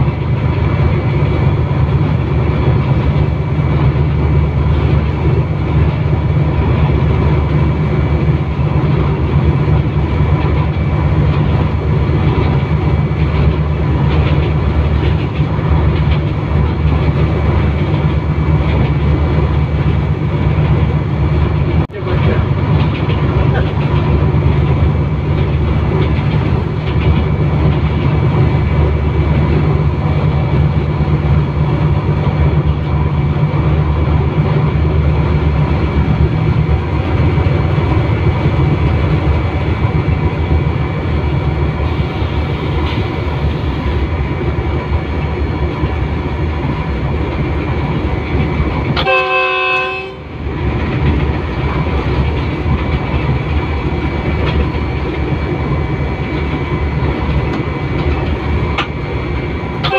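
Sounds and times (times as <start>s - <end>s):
diesel locomotive engine drone: 0.0s - 59.9s
train wheels clacking on rails: 0.0s - 59.9s
train horn: 49.0s - 50.3s.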